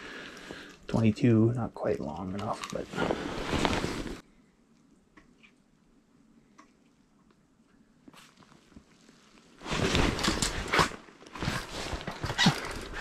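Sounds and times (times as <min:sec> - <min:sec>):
clothing rustling against camera: 0:01.9 - 0:04.2, 0:08.0 - 0:13.0.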